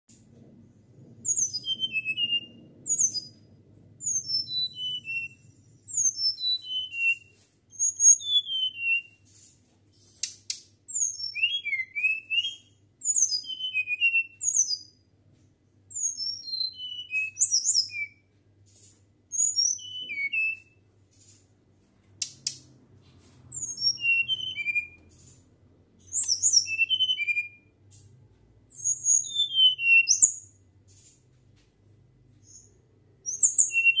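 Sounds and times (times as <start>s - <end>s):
bird whistling song: 1.2s - 9.4s, 10.2s - 15.0s, 15.9s - 18.3s, 19.3s - 20.9s, 23.5s - 25.3s, 26.0s - 27.8s, 28.7s - 30.6s, 32.4s - 34.0s.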